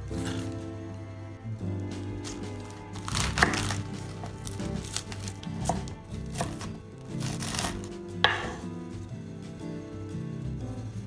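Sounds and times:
knife cutting lettuce: 0.1s - 0.6s, 2.2s - 8.6s
knife knocking on wooden board: 8.2s - 8.7s.

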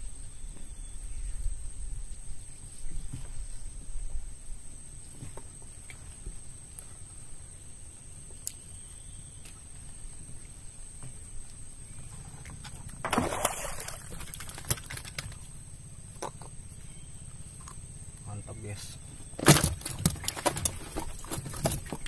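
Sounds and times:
low steady rumble: 0.0s - 22.0s
fish splashing: 13.0s - 15.5s, 19.4s - 22.0s.

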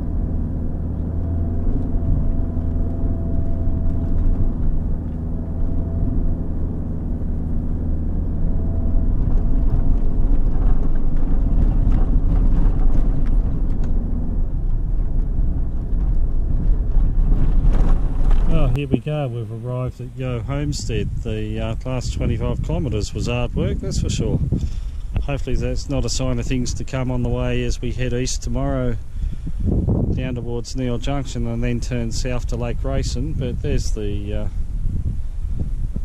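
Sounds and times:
vehicle engine running under load: 0.0s - 36.0s
vehicle knocks and rattles: 0.1s - 19.1s.

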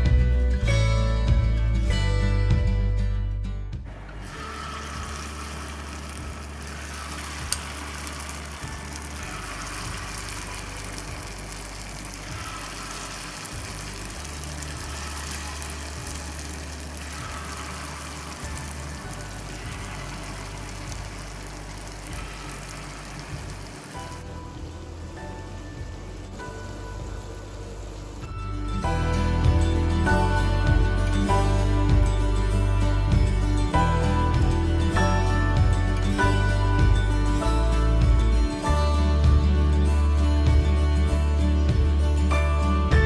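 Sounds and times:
hot oil sizzling and bubbling: 4.2s - 32.0s.

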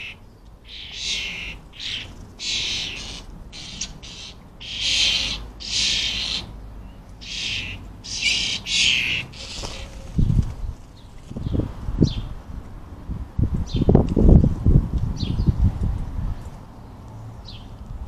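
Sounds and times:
starling fledglings begging calls: 0.0s - 12.3s.

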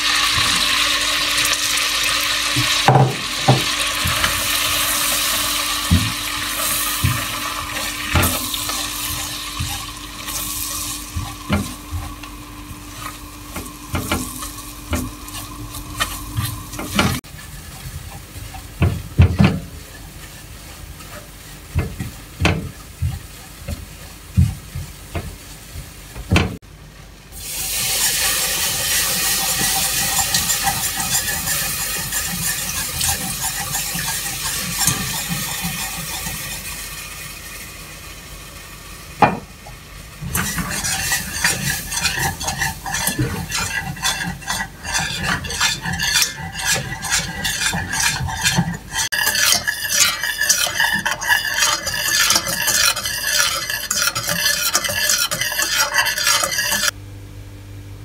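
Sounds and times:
wooden spatula knocking on pan: 2.6s - 4.3s
sizzling hiss: 27.3s - 39.1s.

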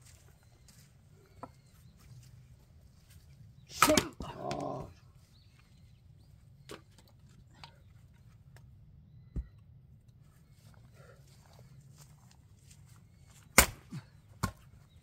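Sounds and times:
person crying out: 3.8s - 4.9s.

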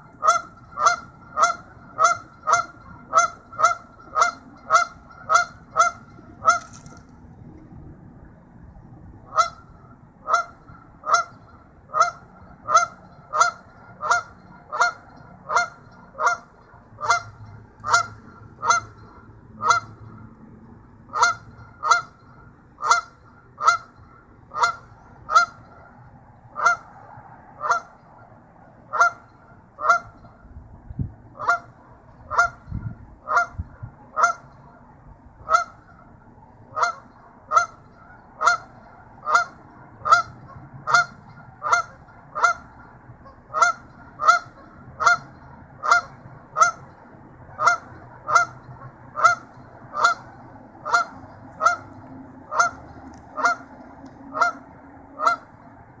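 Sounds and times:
goose honking: 0.0s - 7.0s, 9.3s - 20.2s, 21.1s - 27.0s, 27.6s - 28.0s, 28.9s - 30.4s, 31.4s - 34.8s, 35.4s - 36.1s, 36.7s - 55.7s.

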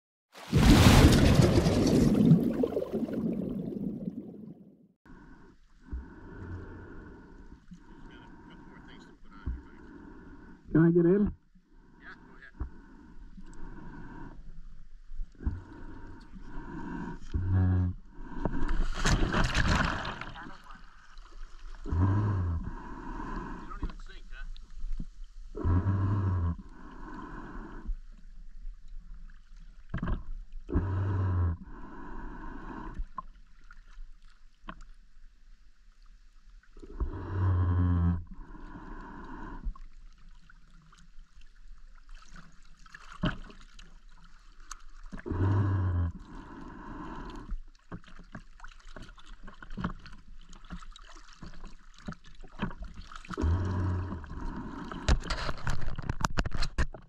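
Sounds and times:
exhaled bubbles rumbling underwater: 0.4s - 4.8s, 49.1s - 56.1s
faint clicks and crackles: 54.9s - 57.0s.

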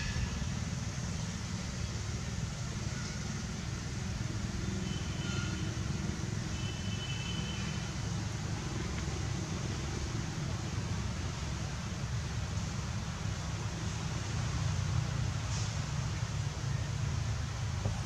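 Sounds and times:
low outdoor rumble: 0.0s - 6.7s
faint hiss: 0.0s - 18.0s.

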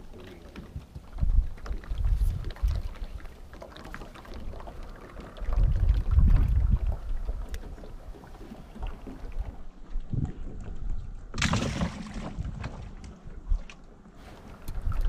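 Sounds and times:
wind buffeting microphone: 0.7s - 3.2s, 5.3s - 7.8s.

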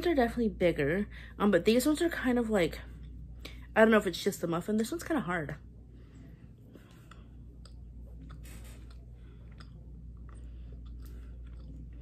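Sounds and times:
low steady hum: 0.0s - 12.0s
closed-mouth chewing: 6.5s - 12.0s.

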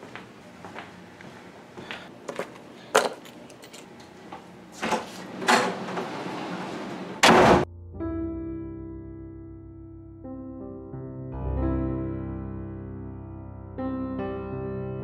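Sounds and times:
door slamming: 4.8s - 7.7s.

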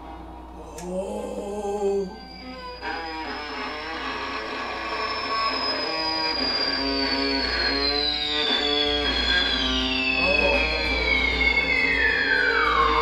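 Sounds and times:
high thin tone sliding downward: 0.0s - 13.0s.

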